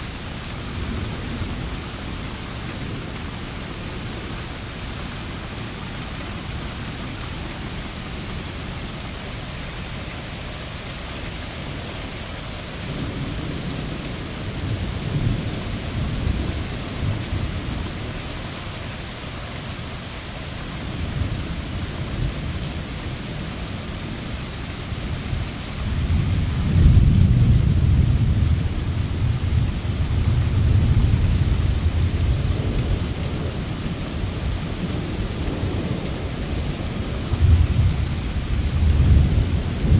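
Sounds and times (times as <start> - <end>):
steady rain: 0.0 - 39.9
thunder rumbling: 25.8 - 39.9.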